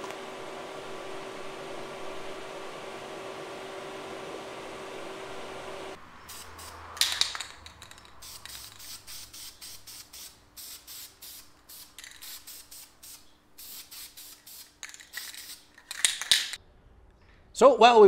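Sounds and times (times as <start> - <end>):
spray paint can hissing: 6.3 - 16.6.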